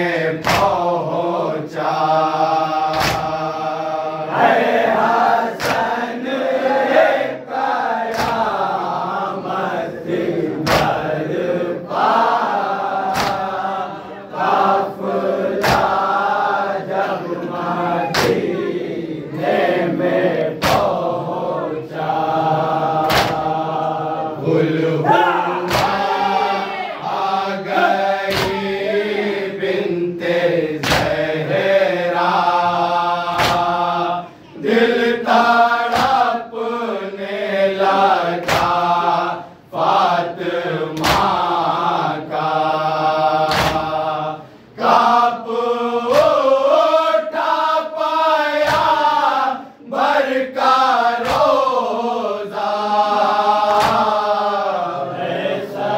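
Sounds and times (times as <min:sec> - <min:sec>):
lead reciter voice: 0:00.0 - 0:55.9
men chanting a lament: 0:00.0 - 0:55.9
chest-beating slaps: 0:00.4 - 0:00.9, 0:02.8 - 0:03.5, 0:05.5 - 0:06.0, 0:08.0 - 0:08.8, 0:10.5 - 0:11.1, 0:12.6 - 0:13.6, 0:15.5 - 0:16.2, 0:18.1 - 0:18.6, 0:20.6 - 0:21.1, 0:23.0 - 0:23.6, 0:25.1 - 0:26.3, 0:28.2 - 0:28.8, 0:30.8 - 0:31.2, 0:33.3 - 0:33.9, 0:35.8 - 0:36.3, 0:38.4 - 0:39.0, 0:40.9 - 0:41.4, 0:43.4 - 0:44.0, 0:46.1 - 0:46.5, 0:48.6 - 0:49.1, 0:51.2 - 0:51.6, 0:53.6 - 0:54.2.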